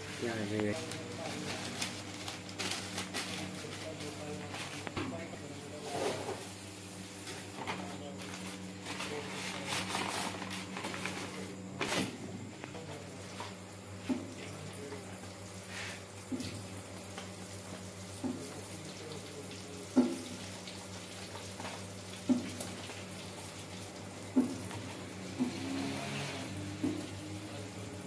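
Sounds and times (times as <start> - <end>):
steady machine hum: 0.0 - 18.2.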